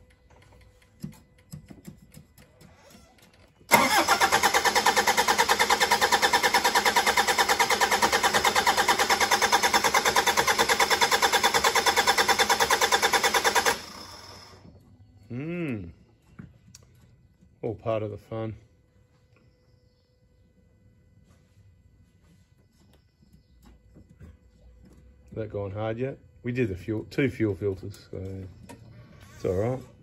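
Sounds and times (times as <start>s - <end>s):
diesel engine cranking on starter: 3.6s - 14.6s.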